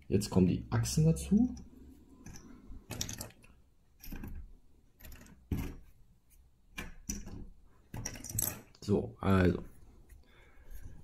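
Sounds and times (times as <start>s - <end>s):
plastic bricks clicking and rattling: 2.2s - 5.8s.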